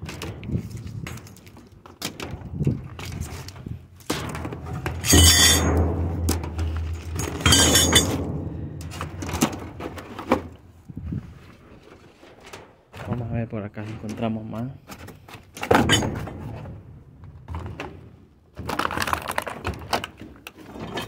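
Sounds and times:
metal scrap clinking and rattling: 3.1 - 10.6, 15.6 - 16.7
loud metal clattering: 4.1 - 10.4, 15.7 - 16.7.

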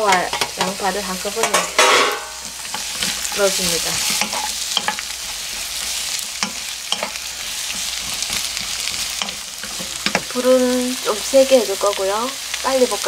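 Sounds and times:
vegetables sizzling in oil: 0.0 - 13.0
wooden spatula scraping pan: 1.5 - 10.5.

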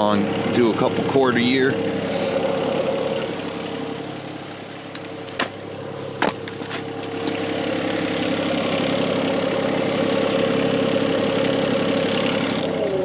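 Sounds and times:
diesel engine idling: 0.0 - 13.0
sharp knocks: 6.2 - 6.8.

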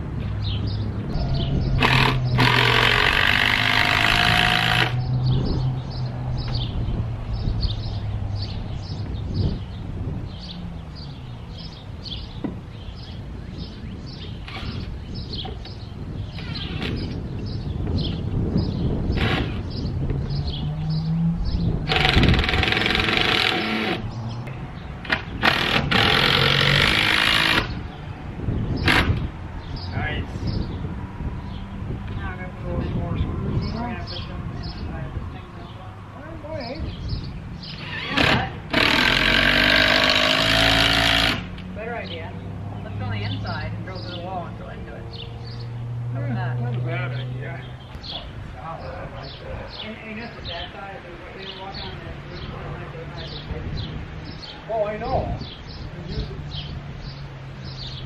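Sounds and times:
birds chirping: 0.0 - 58.0
power drill whining: 1.8 - 5.0, 21.9 - 24.0, 25.4 - 27.7, 37.8 - 41.5.

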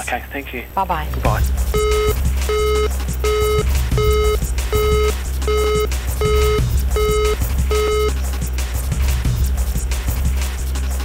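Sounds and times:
music with low bass: 0.0 - 11.0
electronic beeps: 1.8 - 8.2.

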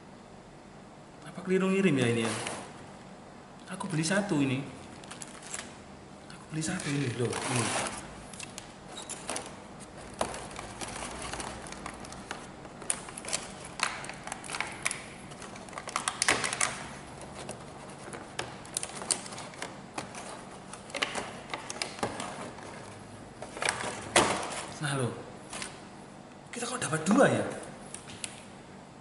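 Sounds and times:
plastic packaging clicks and rustling: 4.8 - 5.8, 6.6 - 24.8, 25.5 - 25.8.

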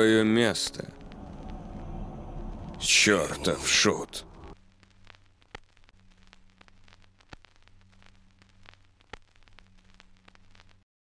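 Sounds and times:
static hiss with clicks: 0.0 - 10.9
low steady hum: 0.6 - 5.2.

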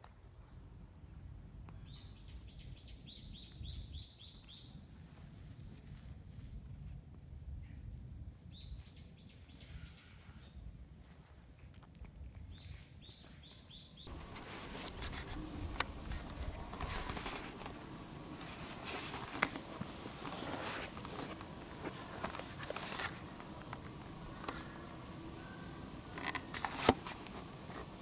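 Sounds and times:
outdoor background noise: 0.0 - 28.0
bird chirping: 12.5 - 26.5.

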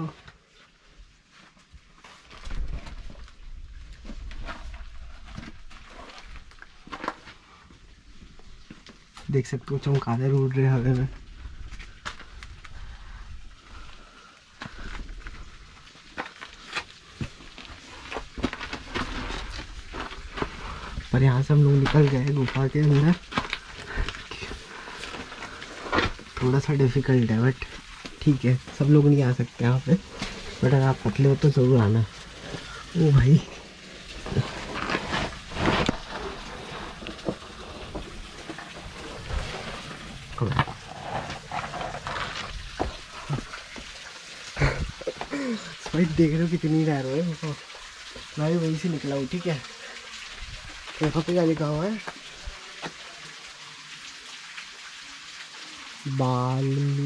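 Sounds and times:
scuffing and scraping of crawling: 34.2 - 37.4.

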